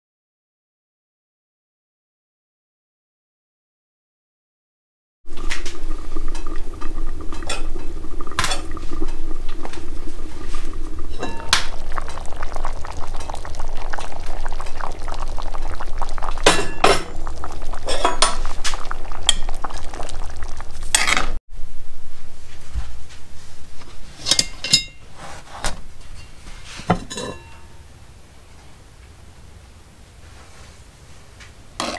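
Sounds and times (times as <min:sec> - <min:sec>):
wood stove fire crackling: 0:05.3 - 0:20.9
chili boiling: 0:05.3 - 0:21.4
steady hum: 0:05.3 - 0:30.2.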